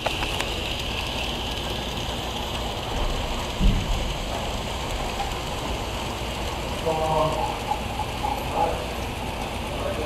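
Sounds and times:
model train running on track: 0.0s - 10.0s.

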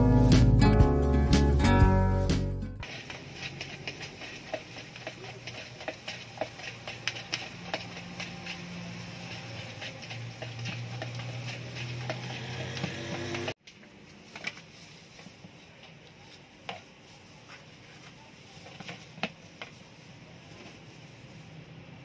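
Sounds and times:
spoon stirring corn in a bowl: 2.8s - 13.6s, 14.2s - 20.9s.

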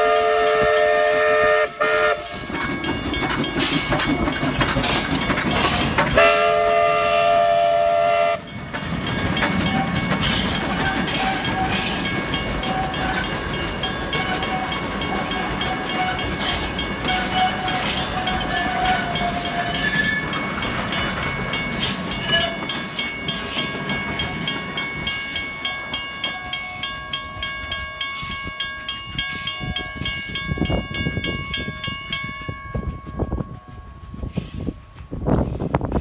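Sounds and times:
train rumbling over crossing: 0.0s - 36.0s
level crossing bell ringing: 8.5s - 33.5s.

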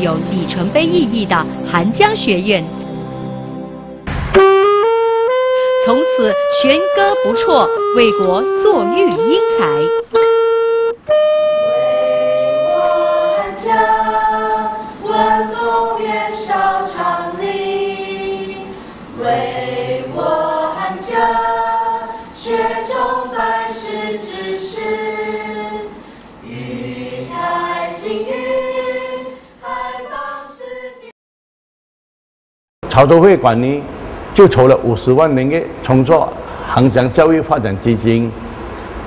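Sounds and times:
choir singing slow melody: 11.6s - 31.1s.

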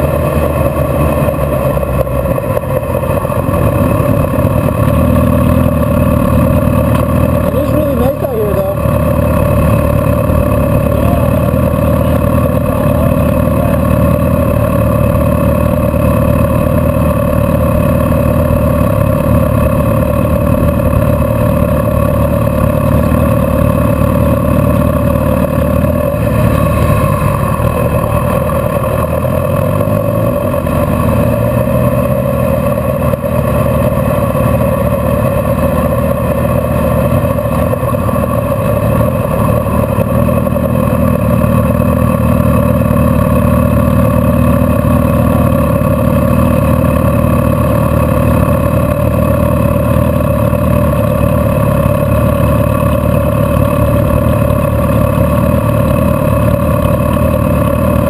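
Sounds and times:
car engine and road rumble: 0.0s - 58.0s
constant hum: 0.0s - 58.0s.

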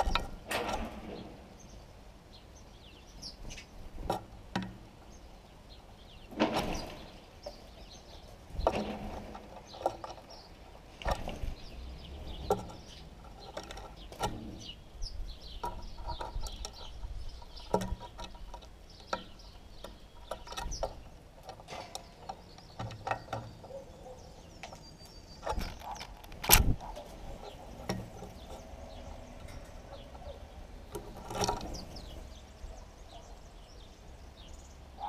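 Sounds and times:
birds pecking at seeds in a dish: 0.0s - 32.6s
sparrows chirping: 0.0s - 35.0s.

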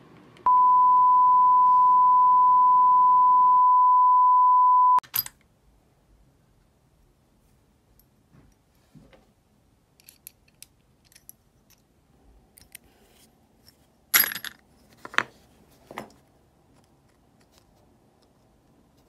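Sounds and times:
metal parts clinking in plastic box: 14.2s - 15.2s.

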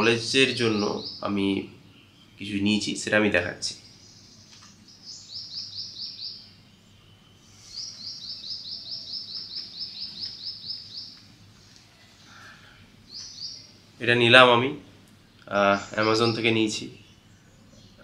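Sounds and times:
bird calling with high notes: 4.0s - 11.3s.

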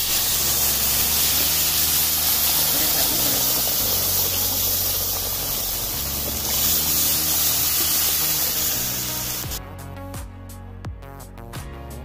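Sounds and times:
hissing rushing noise: 0.0s - 9.6s.

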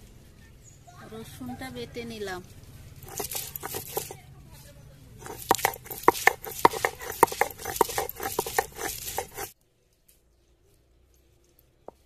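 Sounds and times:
stone roller grinding on stone: 3.0s - 4.2s, 5.2s - 9.6s.

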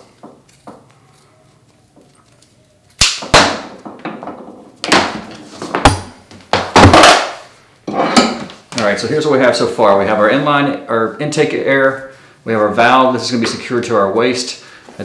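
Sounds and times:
tools knocking and clattering: 3.4s - 8.6s.

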